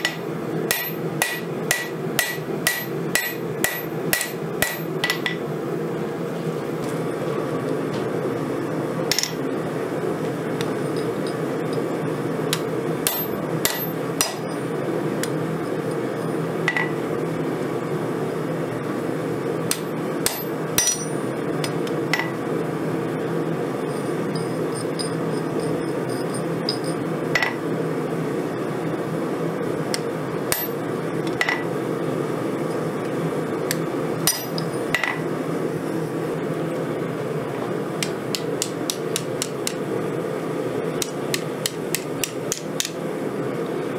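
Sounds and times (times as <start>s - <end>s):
hammer striking steel on anvil: 0.0s - 5.4s, 12.6s - 14.5s, 19.7s - 21.1s.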